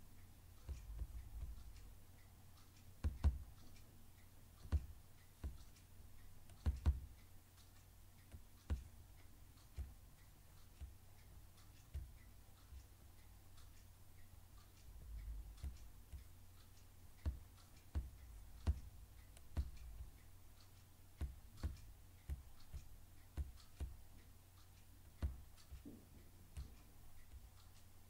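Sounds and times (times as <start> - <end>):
faint low hum: 0.0 - 28.0
computer clicks with thumps: 0.6 - 2.1, 2.7 - 3.9, 4.6 - 5.9, 6.5 - 7.2, 14.7 - 24.2, 25.0 - 28.0.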